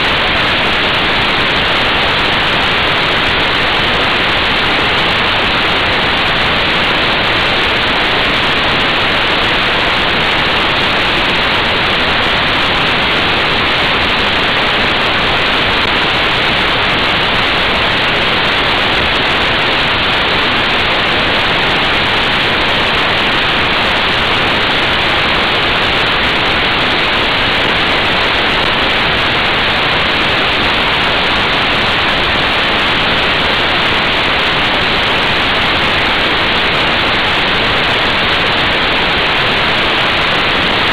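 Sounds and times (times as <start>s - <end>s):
loud wind noise on microphone: 0.0s - 40.9s.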